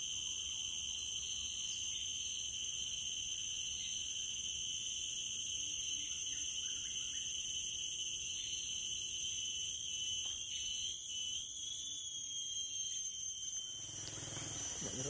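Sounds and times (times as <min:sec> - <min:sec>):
shrill insect drone: 0:00.0 - 0:15.0.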